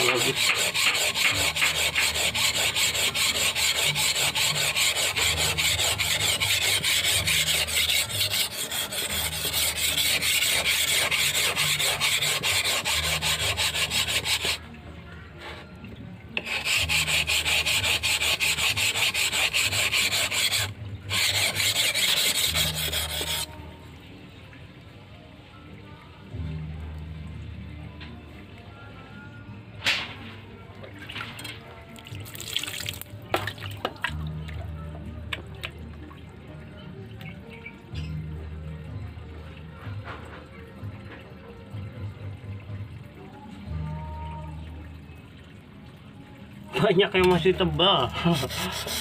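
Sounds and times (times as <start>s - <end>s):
blade grinding on whetstone: 0.0s - 14.6s, 16.4s - 23.5s, 48.2s - 49.0s.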